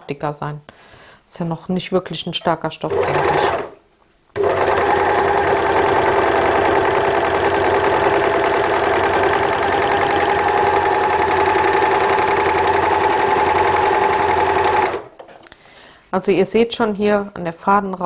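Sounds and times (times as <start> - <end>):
overlocker stitching at speed: 2.9 - 3.8, 4.4 - 15.2.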